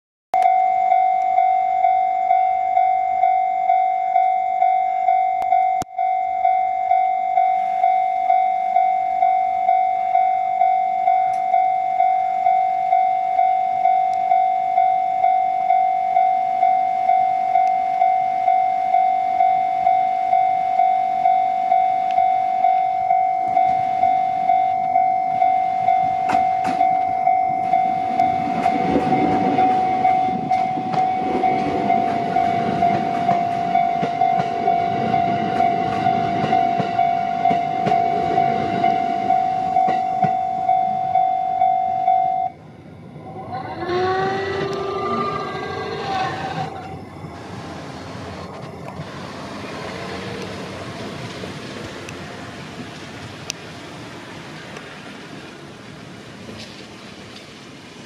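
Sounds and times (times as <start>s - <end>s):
level-crossing electronic bell: 0.4s - 43.5s.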